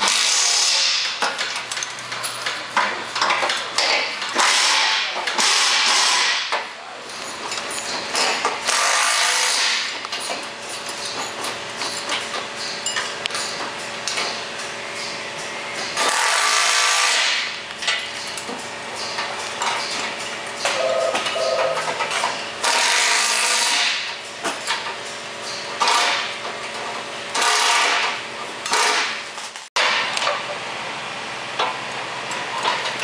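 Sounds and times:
power tool running in bursts: 4.4s - 6.5s, 8.6s - 9.9s, 16.0s - 17.5s, 22.6s - 24.0s.

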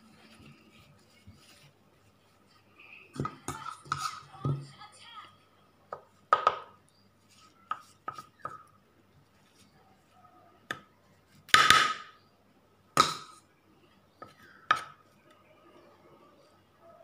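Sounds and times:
spoon scraping ceramic plate: 3.4s - 4.3s.

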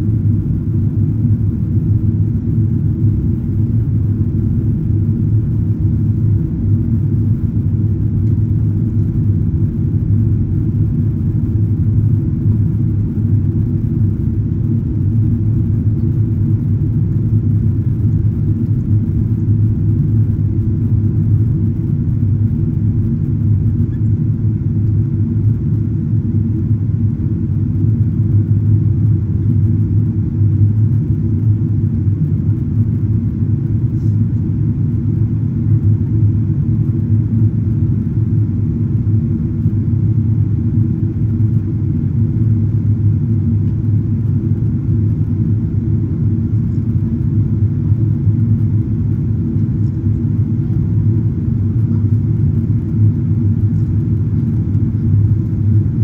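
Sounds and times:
aircraft cabin rumble: 0.0s - 56.0s.

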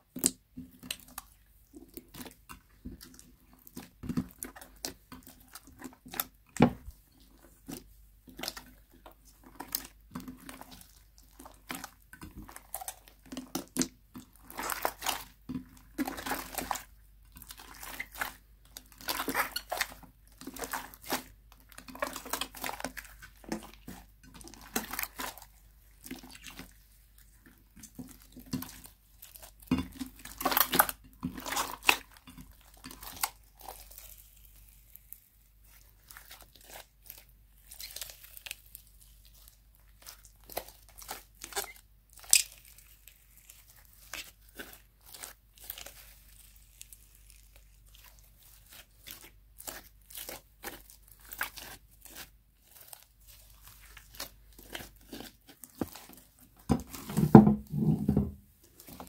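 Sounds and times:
slime squishing and crackling: 0.0s - 57.4s, 58.6s - 59.0s.

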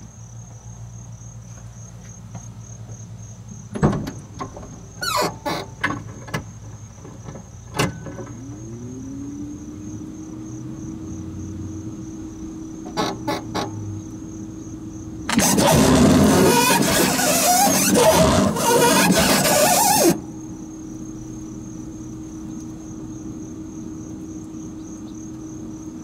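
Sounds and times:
sharp knocks and clunks: 3.7s - 4.8s
electric washer pump whining: 15.3s - 20.2s.

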